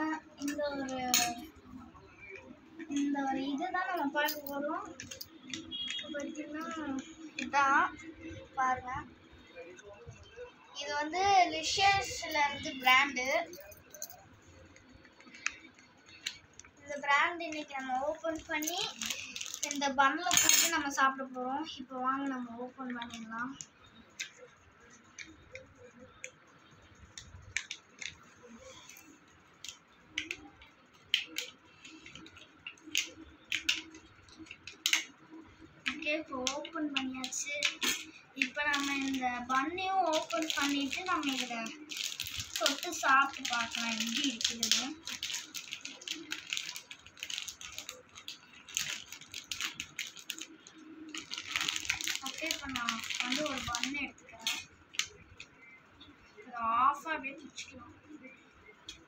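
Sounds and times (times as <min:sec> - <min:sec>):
plastic packet tearing and crinkling: 0:38.4 - 0:39.2, 0:40.0 - 0:55.2.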